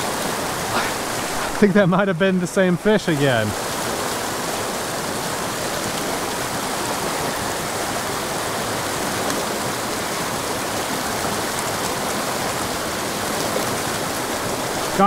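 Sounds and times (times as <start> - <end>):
mountain creek rushing: 0.0 - 15.0.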